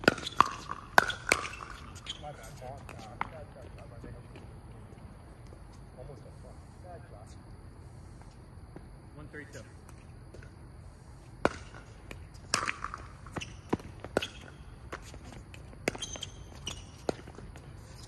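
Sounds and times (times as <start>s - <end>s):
pickleball hitting paddles: 0.0s - 2.2s, 11.4s - 17.6s.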